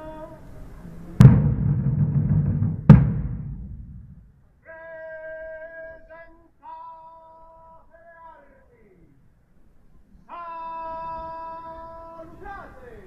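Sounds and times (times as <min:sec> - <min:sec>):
large drum strikes: 0:01.2 - 0:04.3.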